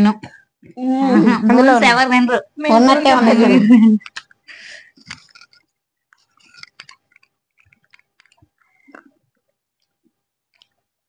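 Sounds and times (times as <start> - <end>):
soft chewing crunches: 4.1 - 10.9.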